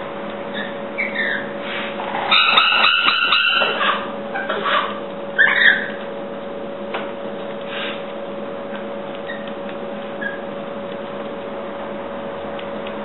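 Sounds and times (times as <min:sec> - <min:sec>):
steady hum: 0:00.0 - 0:13.0
lorikeet screech: 0:00.6 - 0:01.5, 0:02.2 - 0:06.0
faint clicks and taps: 0:06.0 - 0:10.2, 0:10.8 - 0:11.5, 0:12.4 - 0:13.0.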